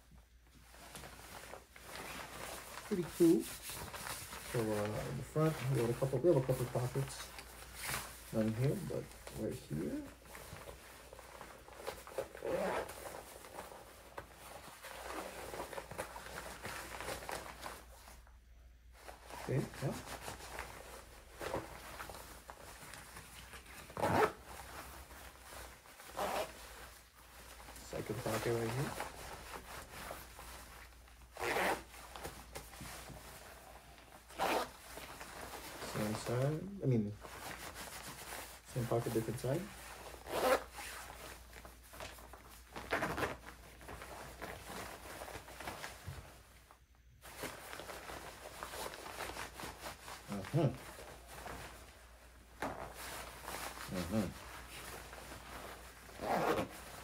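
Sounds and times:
nylon jacket rustling: 0:00.0 - 0:57.0
jacket pocket zipper rasping: 0:09.7 - 0:17.7, 0:23.4 - 0:24.7, 0:25.3 - 0:30.4, 0:31.2 - 0:32.4, 0:34.2 - 0:36.7, 0:39.2 - 0:41.5, 0:42.8 - 0:43.5, 0:52.6 - 0:57.0.

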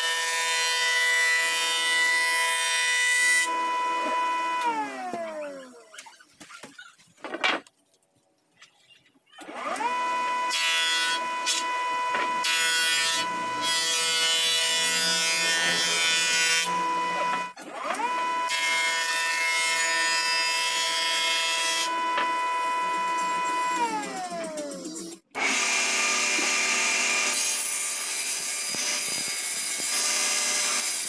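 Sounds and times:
wooden board being planed: 0:10.6 - 0:18.1.

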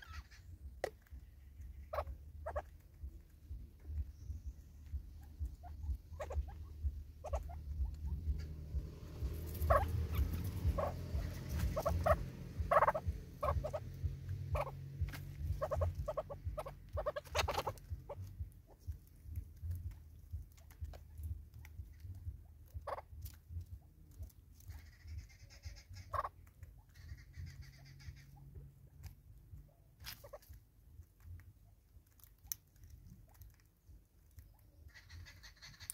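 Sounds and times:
birds pecking and tapping: 0:00.0 - 0:35.9
steady low rumble: 0:00.0 - 0:35.9.

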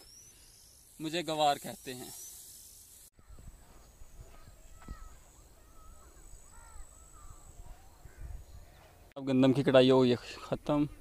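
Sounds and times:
thin steady high tone: 0:00.0 - 0:08.0
birds chirping and calling: 0:03.2 - 0:11.0.

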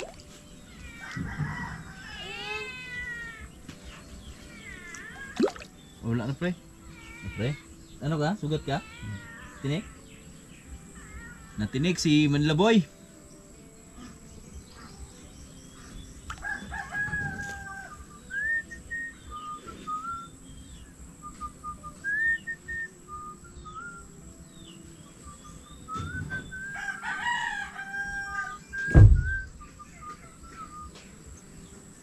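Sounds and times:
small birds chirping: 0:00.0 - 0:32.0
rooster crowing: 0:01.0 - 0:02.6, 0:16.4 - 0:18.1, 0:26.5 - 0:29.4
low thump: 0:28.8 - 0:29.5.

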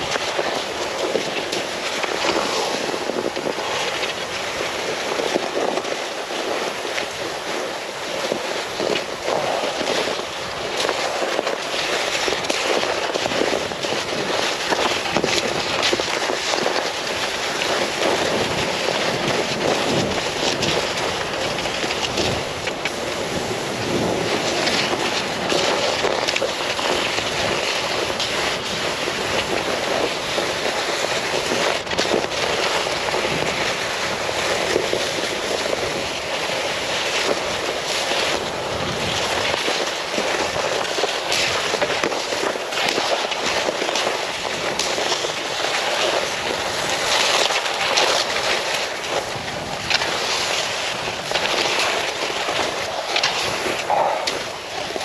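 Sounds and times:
wind gusting on microphone: 0:00.0 - 0:55.0.

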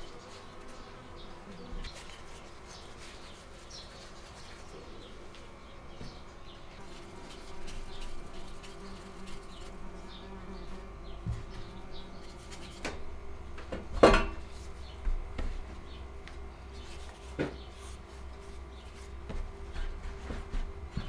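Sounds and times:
insect buzzing: 0:00.0 - 0:13.6.

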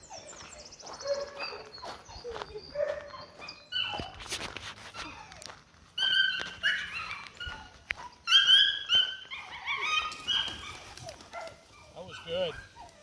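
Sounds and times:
dog whining and yipping: 0:00.0 - 0:13.0.

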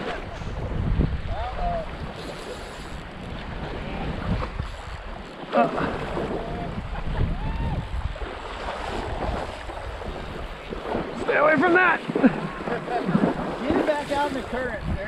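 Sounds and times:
wind buffeting microphone: 0:00.0 - 0:15.0
river current rushing: 0:07.4 - 0:15.0.

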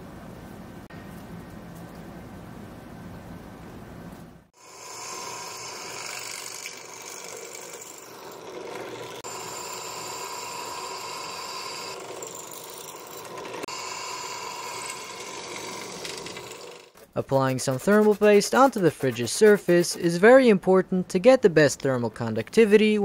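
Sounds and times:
drill bit cutting metal: 0:04.6 - 0:16.9
drill press motor: 0:04.6 - 0:17.0.

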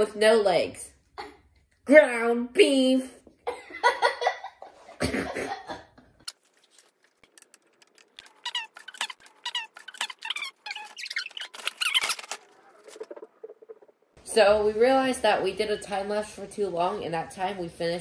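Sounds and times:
sped-up squeaky voices chattering: 0:08.2 - 0:14.1.

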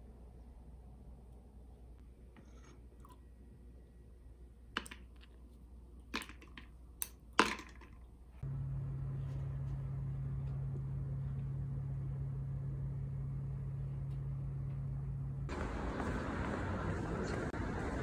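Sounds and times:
steady low hum: 0:08.1 - 0:18.0.

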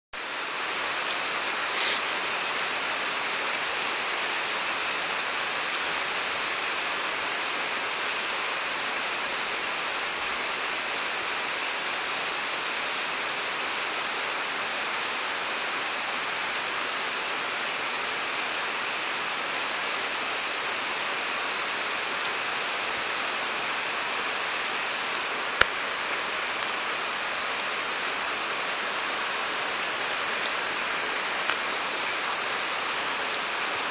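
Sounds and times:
heavy rain on street: 0:00.2 - 0:33.9.

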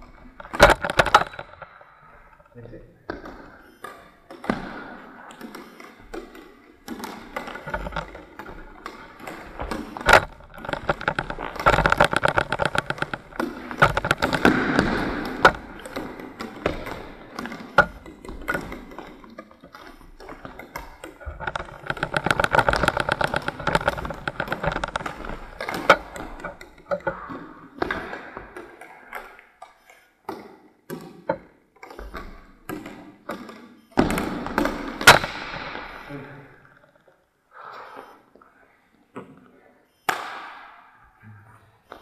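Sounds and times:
goalie gear scraping on floor: 0:00.0 - 0:29.2
ball and stick knocks: 0:03.1 - 0:29.4, 0:30.3 - 0:36.1, 0:40.1 - 0:40.8.

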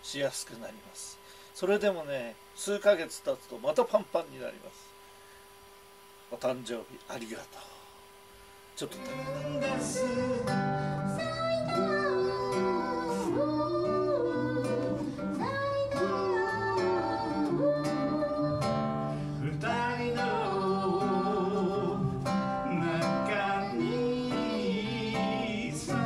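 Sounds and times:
man singing: 0:08.8 - 0:10.6, 0:19.4 - 0:26.0
acoustic guitar strumming: 0:08.9 - 0:26.0.

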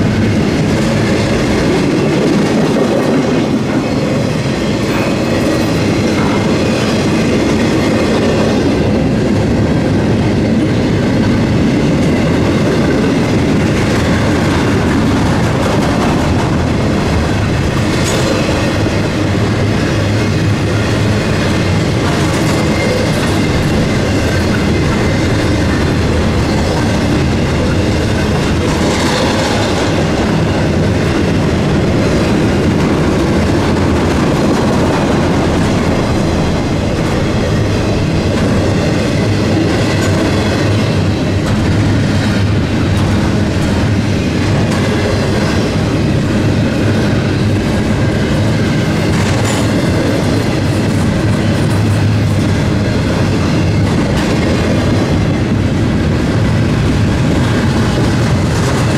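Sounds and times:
freight train wheels on rail: 0:00.0 - 0:58.9.

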